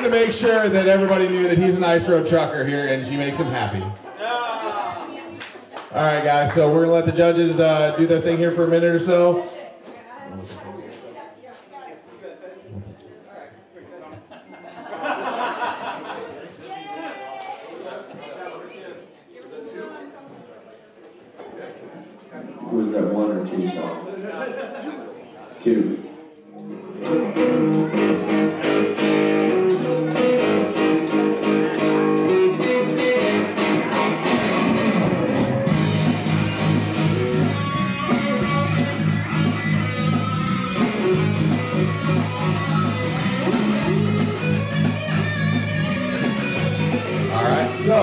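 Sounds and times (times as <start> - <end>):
guitar-led band music: 0.0 - 3.9, 26.6 - 48.0.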